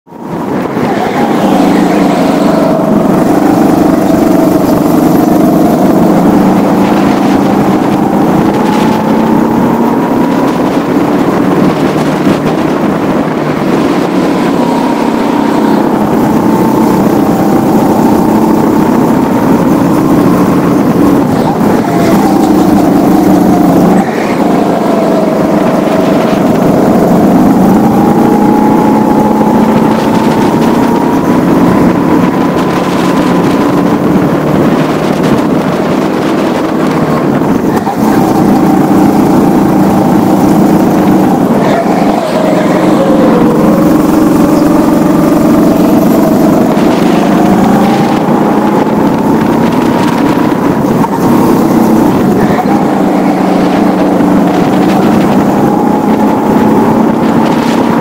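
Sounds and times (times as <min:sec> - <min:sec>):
kart engine running hard: 0:00.1 - 0:58.0.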